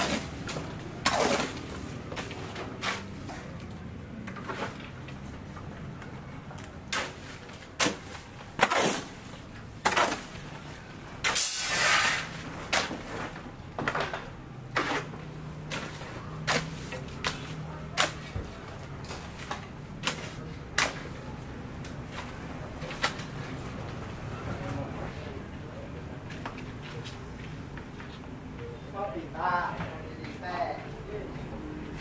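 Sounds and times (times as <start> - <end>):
hoe scraping wet concrete: 0.0 - 3.3, 6.9 - 10.6, 11.2 - 13.4, 14.7 - 18.4.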